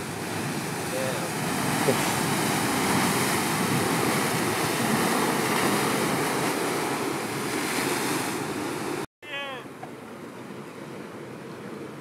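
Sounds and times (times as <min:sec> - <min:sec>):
waves breaking against rocks: 0:00.0 - 0:09.1.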